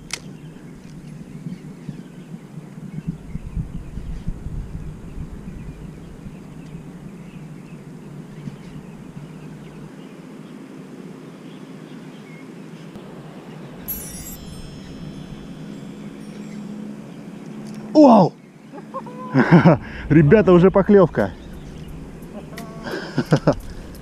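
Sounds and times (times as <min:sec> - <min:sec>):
faint low background noise: 0:05.6 - 0:24.0
bright chime sound effect: 0:13.0 - 0:17.9.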